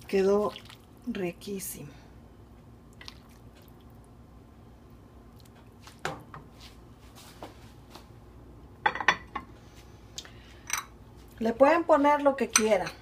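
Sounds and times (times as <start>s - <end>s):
liquid splashing into a bowl: 0.4s - 1.0s, 2.9s - 4.0s.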